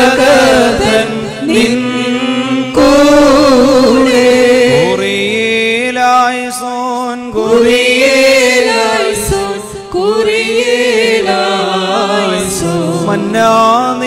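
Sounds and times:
men singing a slow hymn: 0.0 - 14.0.

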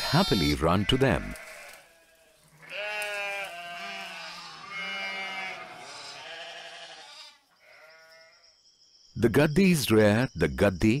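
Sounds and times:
sheep and lambs bleating: 0.0 - 8.4.

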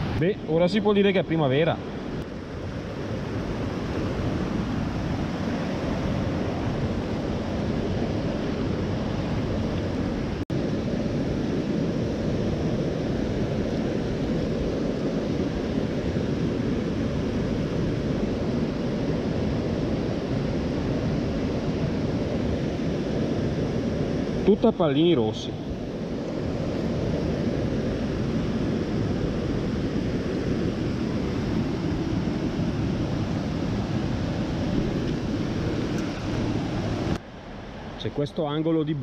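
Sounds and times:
stream water rushing: 33.1 - 38.6.

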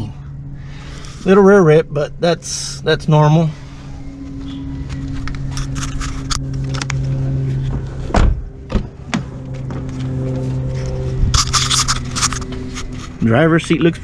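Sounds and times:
low machine hum: 0.0 - 14.0
car door thud: 7.7 - 9.3.

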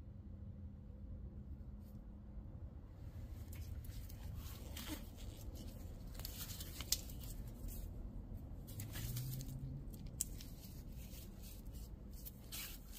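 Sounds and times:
gloved handling rustles: 3.3 - 12.9.

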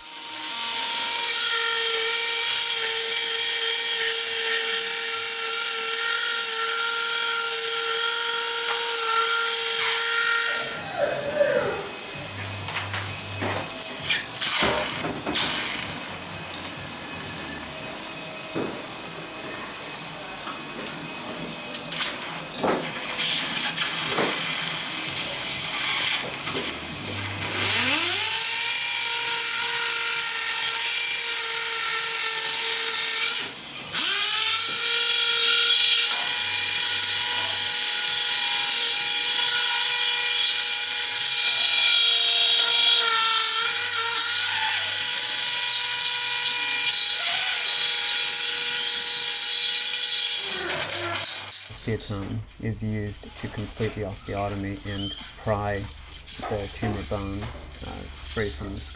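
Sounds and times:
bone saw whining: 4.0 - 15.1, 50.4 - 58.9.

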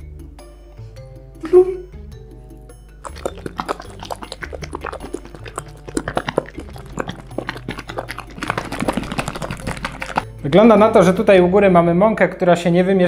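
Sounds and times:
plastic bottle of batter being shaken: 3.0 - 10.3.

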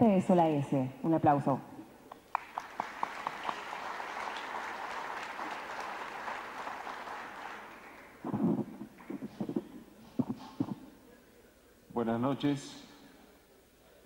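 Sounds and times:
audience applause: 2.1 - 9.6.

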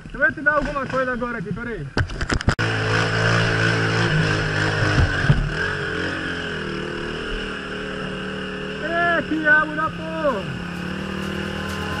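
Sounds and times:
dirt bike engine running: 2.6 - 12.0.

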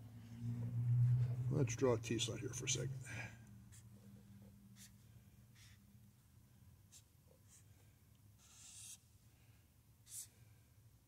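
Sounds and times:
pen scratching on paper: 4.8 - 5.0, 5.6 - 5.8, 6.9 - 7.6, 8.4 - 9.1, 10.0 - 10.4.

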